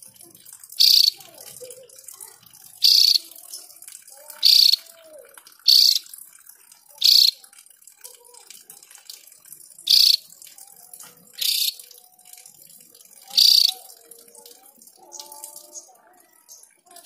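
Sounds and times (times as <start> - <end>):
bird giving harsh calls: 0.8 - 1.2, 2.8 - 3.2, 4.4 - 4.9, 5.6 - 6.1, 7.0 - 7.4, 9.9 - 10.2, 11.4 - 11.8, 13.4 - 13.8.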